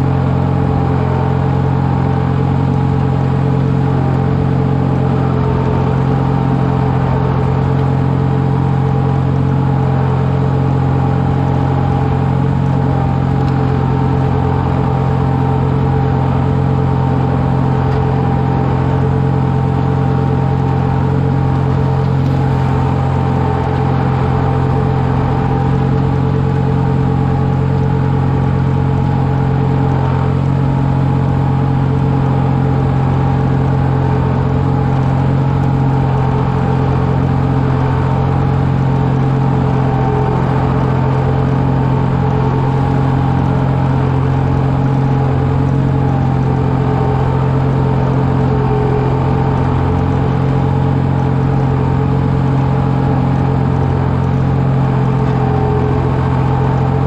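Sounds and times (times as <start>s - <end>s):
tractor engine humming: 0.0s - 57.0s.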